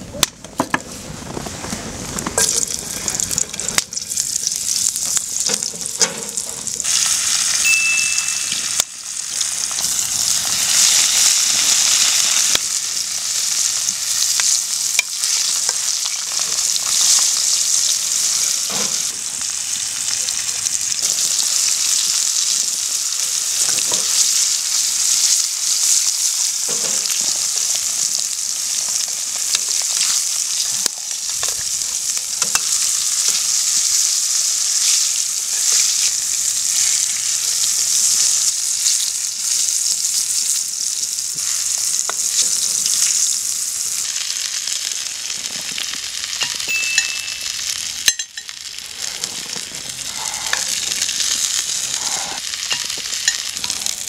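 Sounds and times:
fish frying in hot oil: 1.2 - 54.0.

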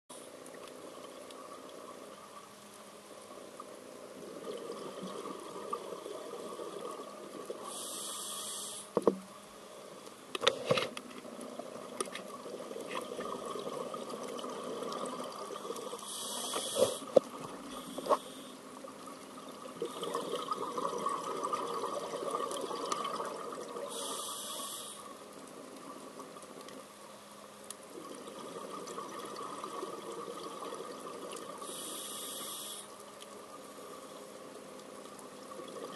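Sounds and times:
regulator inhale hiss: 7.6 - 9.0, 16.0 - 18.7, 23.8 - 25.2, 31.6 - 33.0
exhaled air bubbling: 11.5 - 18.3, 18.9 - 25.0, 27.9 - 32.6.

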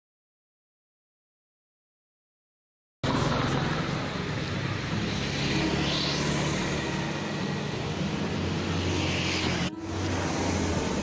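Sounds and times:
street traffic: 3.0 - 11.0
vehicle engine running: 3.0 - 11.0.

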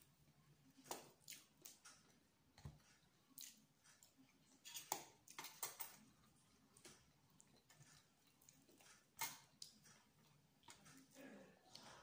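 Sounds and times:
person chewing: 0.0 - 12.0.

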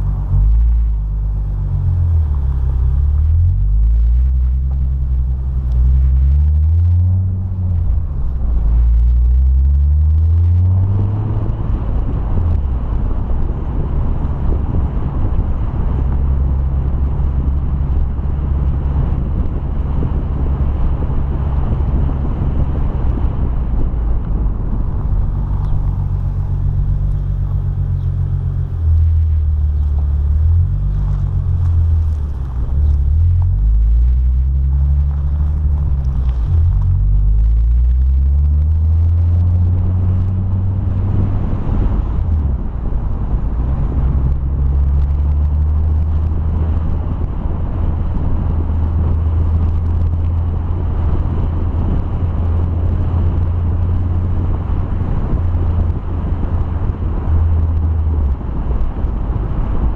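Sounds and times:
car engine revving: 0.0 - 59.9
wind noise: 0.0 - 59.9
tyre noise: 21.7 - 42.7.

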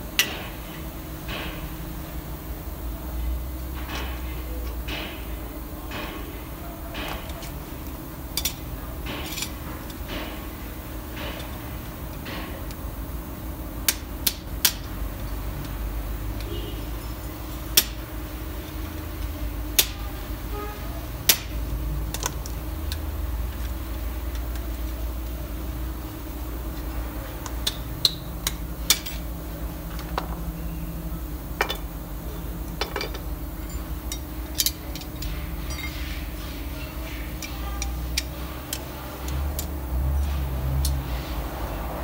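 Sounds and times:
metal parts clinking on concrete: 9.2 - 10.0, 27.6 - 29.3, 31.6 - 31.9, 32.7 - 36.1.

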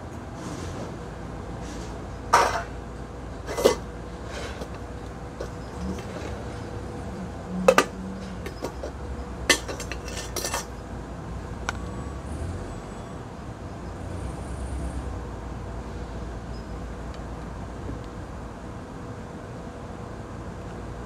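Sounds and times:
dishes and utensils clinking: 2.3 - 2.8, 3.4 - 6.6, 7.6 - 10.8.

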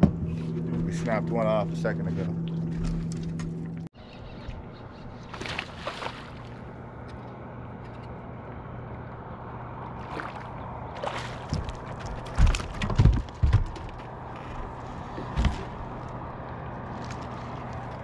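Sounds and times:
steady low hum: 0.0 - 18.0
heavy knocks and thumps: 12.3 - 14.0.

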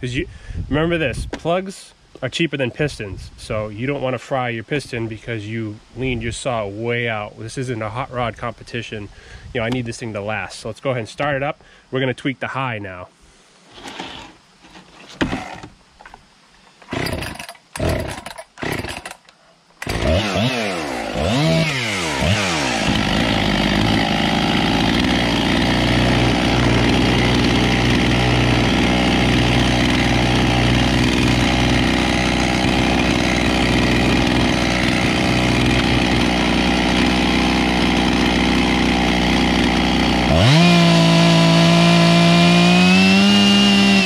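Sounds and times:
chainsaw engine running: 15.3 - 15.7, 16.9 - 19.2, 19.8 - 44.0.

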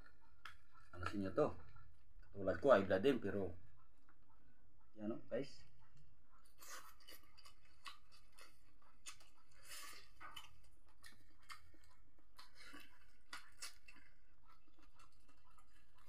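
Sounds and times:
person chewing crab shell: 5.8 - 16.0.

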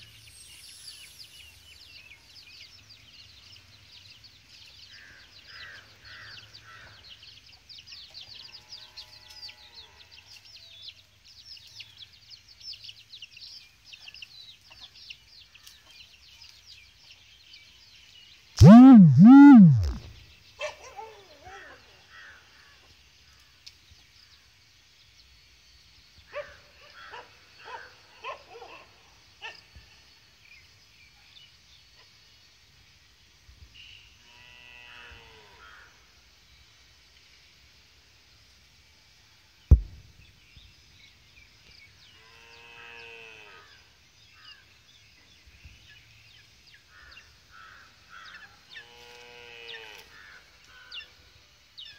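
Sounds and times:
animal calls rising and falling: 18.6 - 20.1.

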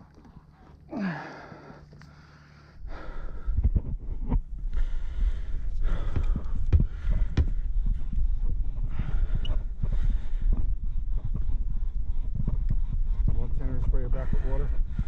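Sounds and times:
heavy breaths and gasps: 0.0 - 15.0
low rumble: 0.0 - 15.0
person groaning: 0.9 - 1.4.

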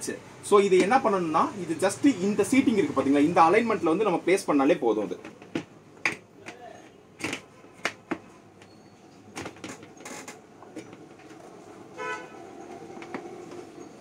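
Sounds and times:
horn toot: 12.0 - 12.4.

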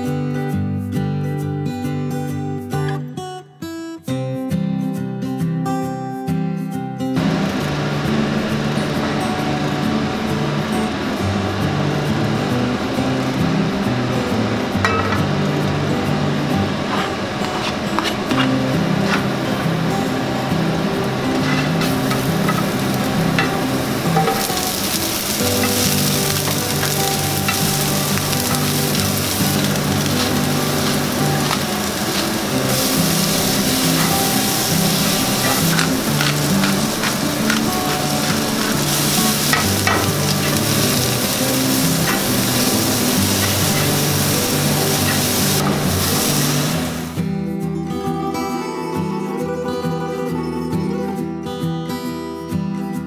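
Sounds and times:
vegetables sizzling in a pan: 7.2 - 47.2
turner clicking against pan: 21.3 - 45.7.

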